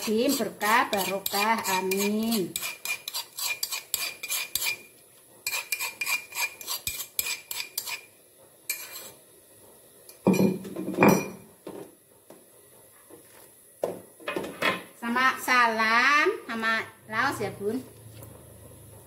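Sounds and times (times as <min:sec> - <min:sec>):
spoon scraping and tapping mortar: 0:00.0 - 0:08.1, 0:08.7 - 0:09.2.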